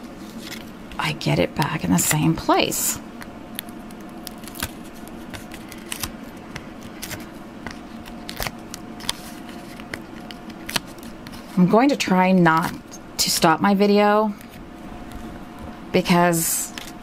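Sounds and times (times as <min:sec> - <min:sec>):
faint steady hum: 0:00.0 - 0:17.0
paper clicks and rustles: 0:03.6 - 0:11.6.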